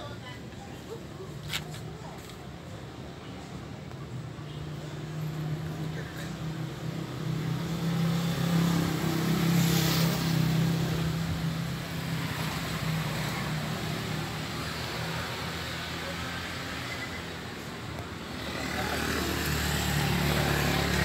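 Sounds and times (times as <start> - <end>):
vehicle engine hum passing: 4.7 - 21.0.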